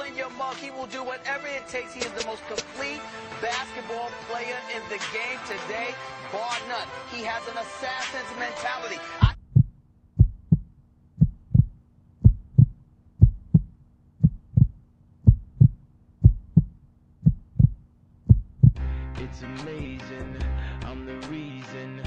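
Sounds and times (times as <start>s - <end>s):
heartbeat thumps: 9.2s - 18.8s
music with guitar: 18.8s - 22.0s.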